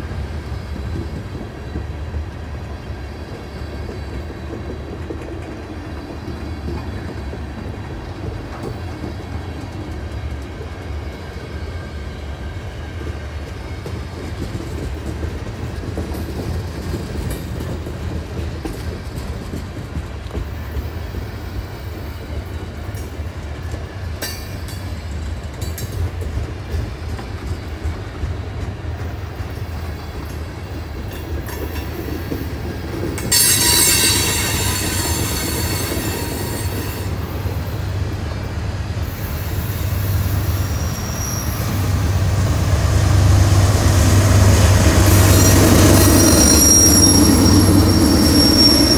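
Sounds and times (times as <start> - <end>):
freight train wheels rumbling on rail: 0.0 - 48.9
high-pitched wheel squeal: 33.3 - 37.1, 39.9 - 42.0, 45.0 - 48.9.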